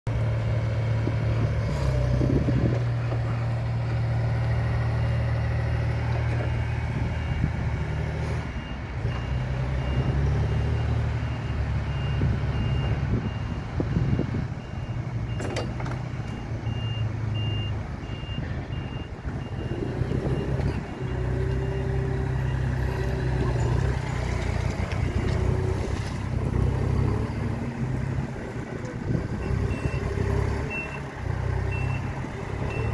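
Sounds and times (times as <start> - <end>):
forklift engine revving: 19.0 - 32.9
reversing beeper: 29.4 - 32.9.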